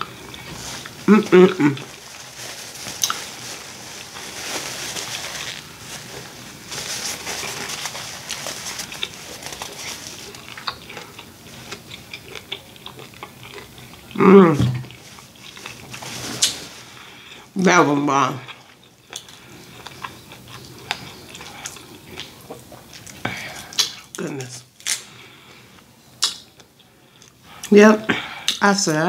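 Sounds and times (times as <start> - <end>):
paper napkin rustling: 0.0 - 10.7, 14.9 - 17.3
person humming: 1.0 - 1.9, 14.2 - 14.8
wet chewing and lip-smacking: 8.8 - 14.2, 18.5 - 24.2.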